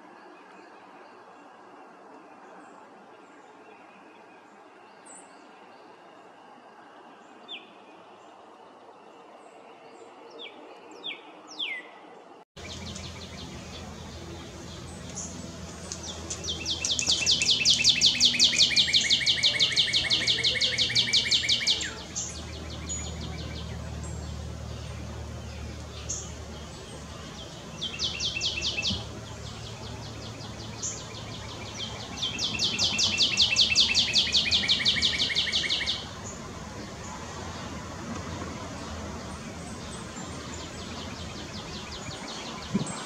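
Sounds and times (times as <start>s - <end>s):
bird trilling: 16.0s - 23.2s.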